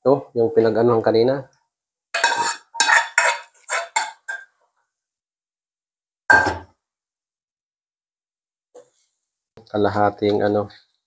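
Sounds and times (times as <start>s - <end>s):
spatula scraping a pan: 2.2s - 4.5s
cookware knock: 6.3s - 6.7s.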